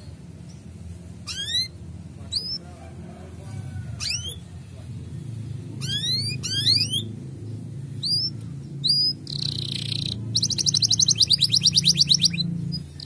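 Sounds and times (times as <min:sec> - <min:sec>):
steady low hum: 0:00.0 - 0:13.0
canary calls: 0:01.2 - 0:02.7, 0:03.5 - 0:04.6, 0:05.7 - 0:07.2, 0:08.0 - 0:13.0.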